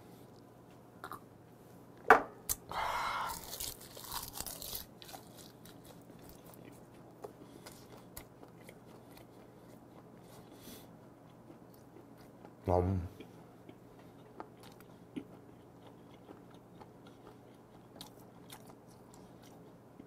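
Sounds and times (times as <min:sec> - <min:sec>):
breathy exhale: 0:02.7 - 0:03.4
chewing with crunches: 0:03.3 - 0:20.0.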